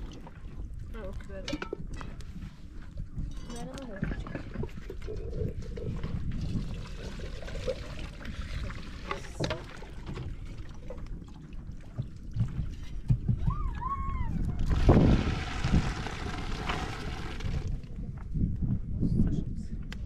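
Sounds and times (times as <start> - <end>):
water splashing and sloshing: 0.0 - 18.0
water pouring into a basin: 4.6 - 12.3, 14.6 - 17.8.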